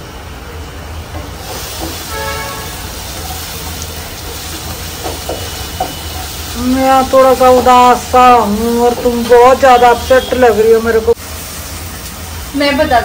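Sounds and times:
food sizzling in a pan: 0.0 - 13.0
spatula tapping a pan: 1.1 - 2.2, 4.3 - 6.4.

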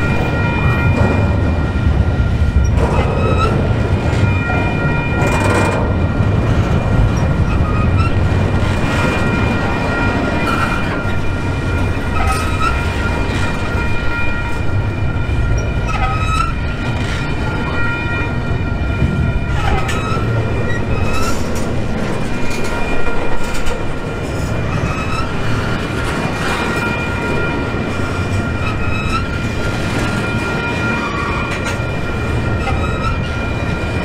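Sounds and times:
model trains rumbling and whining: 0.0 - 34.0.

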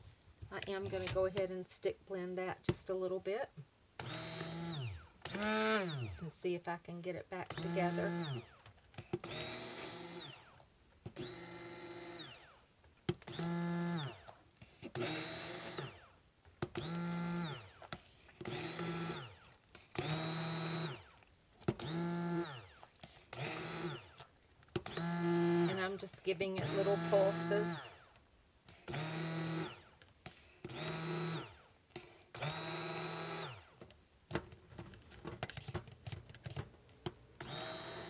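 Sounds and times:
stick blender motor whine: 4.0 - 6.2, 7.4 - 28.2, 28.8 - 33.9, 37.4 - 38.0.

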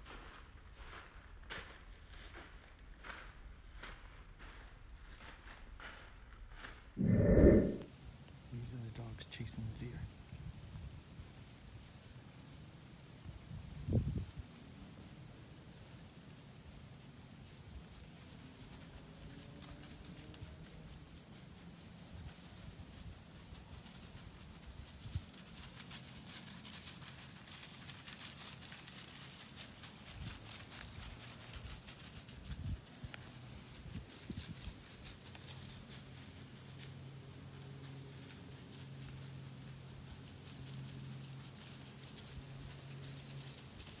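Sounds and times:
steady low hum: 7.0 - 7.9
footfalls crunching dry leaves: 22.1 - 44.0.

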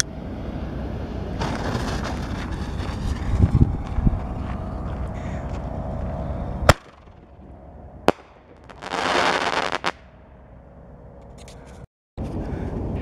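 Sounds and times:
firework crackling: 1.4 - 3.2, 8.1 - 10.0.

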